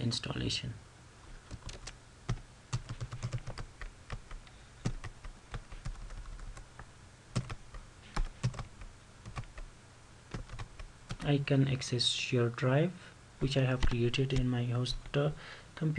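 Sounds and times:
typing on computer keyboard: 1.5 - 6.6, 7.4 - 9.7, 10.3 - 11.3.

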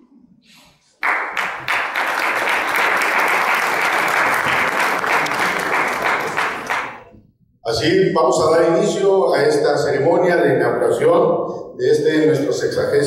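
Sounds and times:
audience applauding: 1.0 - 7.1.

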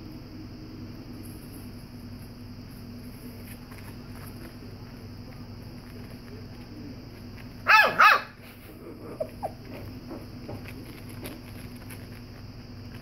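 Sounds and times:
puppy barking: 7.6 - 8.4.

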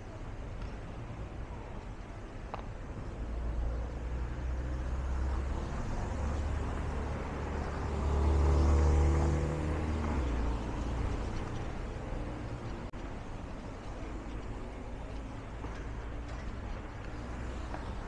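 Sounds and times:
cars driving past: 3.2 - 13.0.

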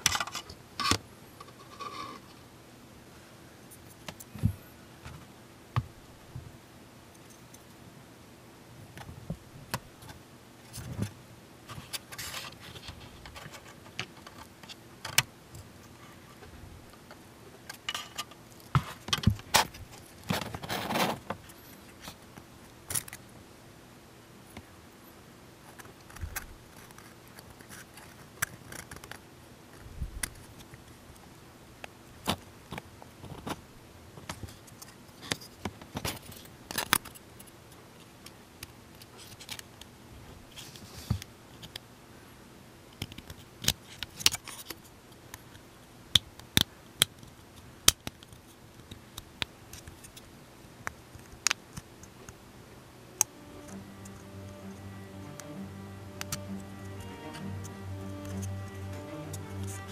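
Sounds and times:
plastic parts clicking and tapping: 25.7 - 29.2, 43.0 - 44.7.

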